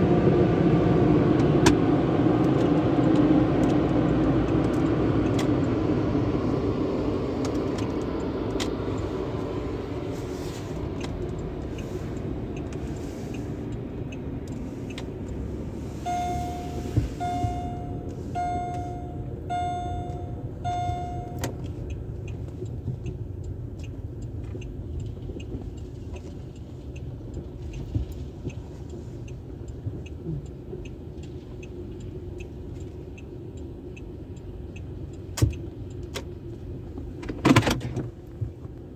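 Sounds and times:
car engine idling: 0:00.0 - 0:37.0
light regular ticking: 0:02.4 - 0:10.1, 0:10.7 - 0:37.2
dashboard warning chime: 0:15.2 - 0:22.4.

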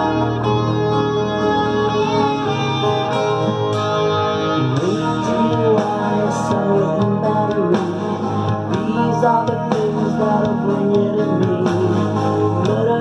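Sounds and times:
electric bass: 0:00.0 - 0:13.0
rock guitars: 0:00.0 - 0:13.0
person singing: 0:04.4 - 0:13.0.

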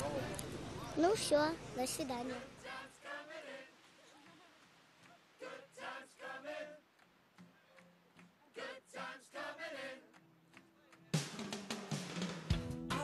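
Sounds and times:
faint singing voices: 0:01.9 - 0:06.9.

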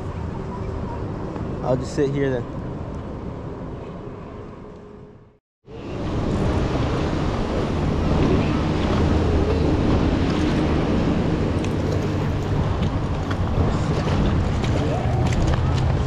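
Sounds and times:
river water flowing: 0:05.7 - 0:16.0
wind buffeting microphone: 0:05.7 - 0:16.0.

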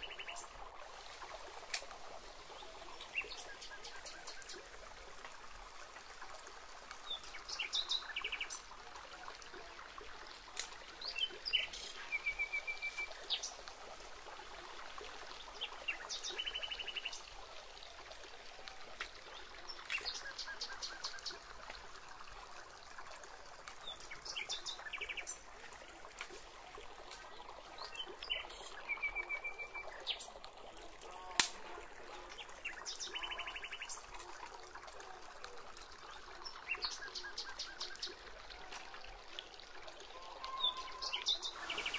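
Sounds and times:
steady outdoor hiss: 0:00.0 - 0:41.9
wild birds chirping: 0:40.1 - 0:41.9.

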